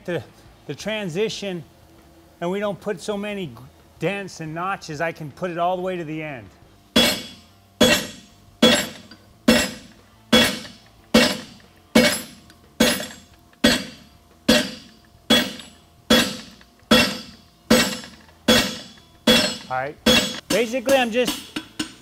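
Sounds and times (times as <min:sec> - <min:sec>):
hammer striking hot steel on anvil: 0:06.9 - 0:22.0.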